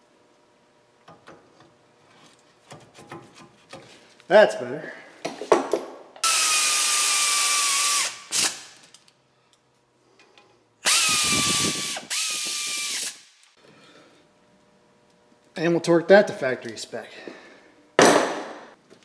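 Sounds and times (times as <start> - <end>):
electric ratchet motor whine: 10.8 - 13.5.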